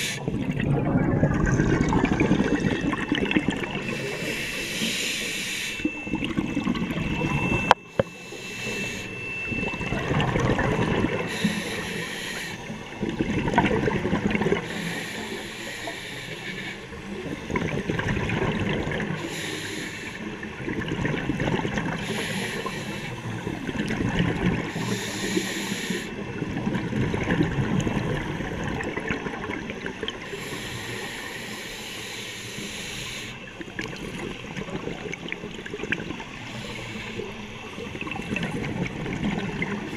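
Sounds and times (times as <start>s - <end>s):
diver inhaling through regulator: 0.0s - 0.3s, 3.6s - 6.0s, 7.9s - 9.4s, 11.1s - 12.9s, 14.6s - 17.6s, 19.1s - 20.3s, 22.0s - 23.5s, 24.6s - 26.2s, 30.2s - 34.2s, 36.4s - 37.5s
bubbling exhale: 0.0s - 16.8s.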